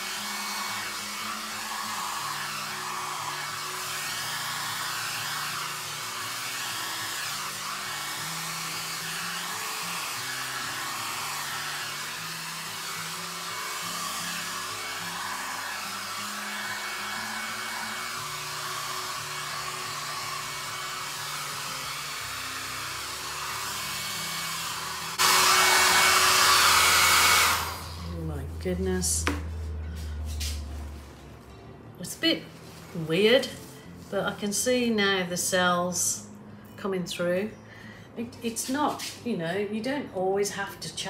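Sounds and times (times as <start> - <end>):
hair dryer blowing: 0.0 - 30.7.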